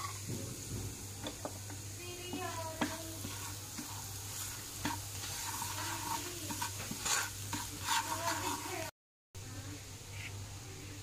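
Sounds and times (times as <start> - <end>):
spices sizzling in oil: 0.0 - 9.0
wooden spatula scraping a pan: 2.2 - 8.9.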